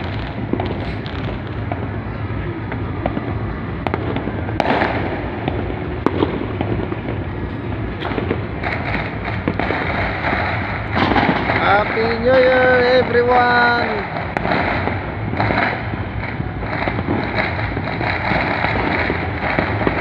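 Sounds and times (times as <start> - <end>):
sharp firework bangs: 0.0 - 20.0
rattle of firework pops: 8.0 - 20.0.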